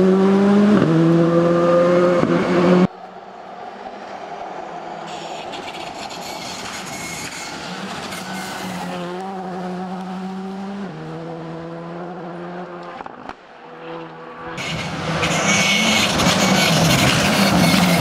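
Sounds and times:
rally car engine revving: 0.0s - 2.9s, 6.8s - 18.0s.

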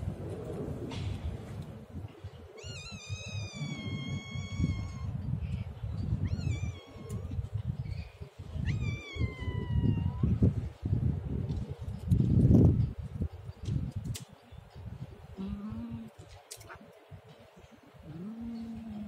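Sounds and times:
cat meowing: 2.6s - 5.1s, 8.6s - 10.3s.

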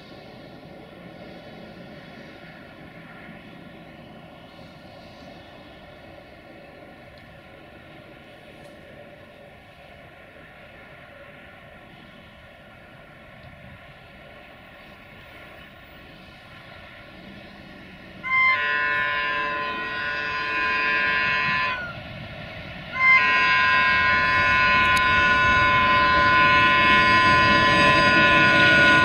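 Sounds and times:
locomotive running rumble: 0.0s - 29.0s
locomotive air horn blasts: 18.2s - 22.0s, 22.9s - 29.0s.

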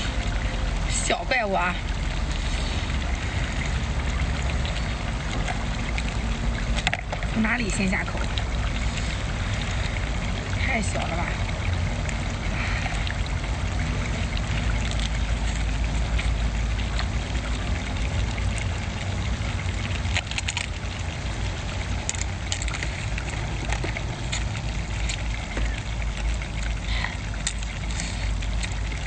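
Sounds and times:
low rumble: 0.0s - 29.0s
crab shell cracking and crunching: 20.0s - 20.8s, 22.0s - 25.2s.

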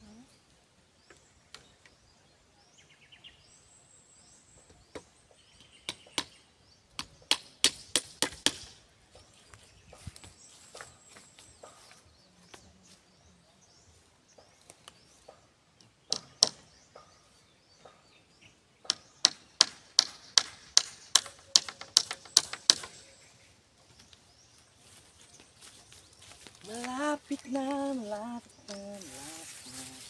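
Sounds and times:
tool striking bamboo: 7.0s - 8.8s, 16.1s - 16.6s, 18.8s - 23.0s.

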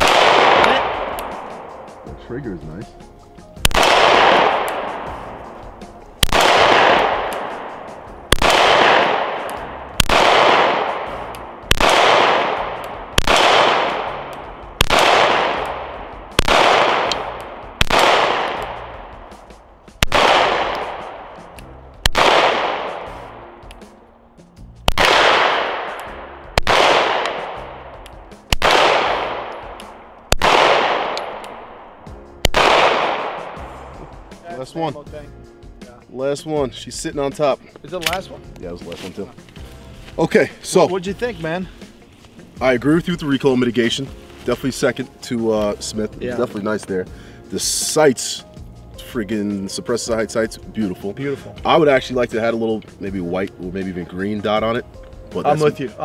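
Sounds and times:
pistol shots echoing: 0.0s - 2.1s, 3.6s - 23.4s, 24.9s - 33.6s.

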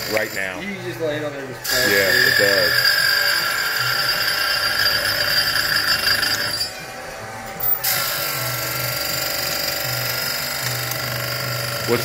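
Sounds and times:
chain grinder whirring: 1.7s - 6.8s, 7.6s - 12.0s.

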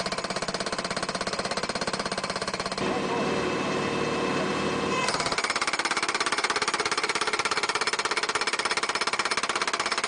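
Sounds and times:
machine rapid hammering: 5.1s - 10.0s.

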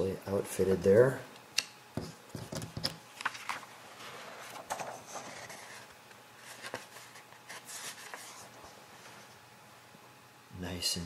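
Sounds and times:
paper pages rustling: 3.2s - 9.3s.

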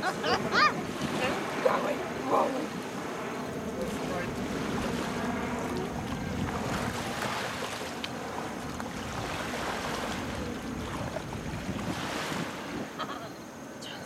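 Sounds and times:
wind rumble on microphone: 0.0s - 13.3s
feet splashing in shallow water: 3.8s - 12.7s.

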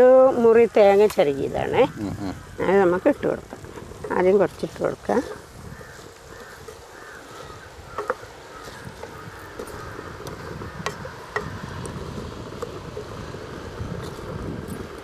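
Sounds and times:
spatula scraping pan: 2.7s - 11.6s
wood knocking on pan: 6.3s - 11.6s.

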